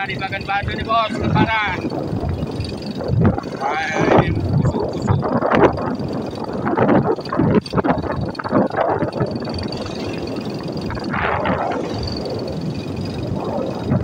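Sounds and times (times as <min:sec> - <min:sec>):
road and engine noise: 0:00.0 - 0:14.0
wind gusts on microphone: 0:00.0 - 0:14.0.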